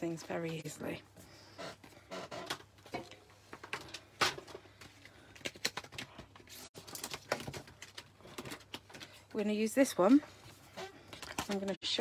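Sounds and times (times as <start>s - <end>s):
hands handling craft supplies: 2.5s - 12.0s.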